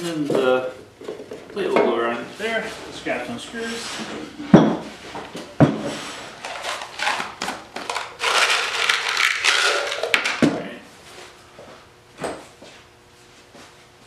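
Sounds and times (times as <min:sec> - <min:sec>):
knock on wooden bench: 0:04.5 - 0:04.9, 0:05.6 - 0:05.9.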